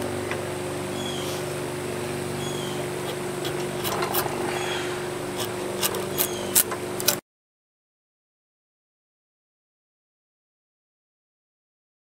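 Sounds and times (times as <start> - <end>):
steady mechanical hum: 0.0 - 7.2
blade scraping wooden handle: 3.0 - 7.2.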